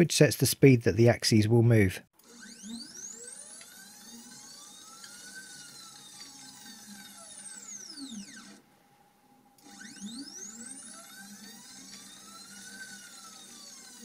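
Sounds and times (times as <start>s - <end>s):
stepper motor whine: 2.2s - 8.7s, 9.5s - 14.0s.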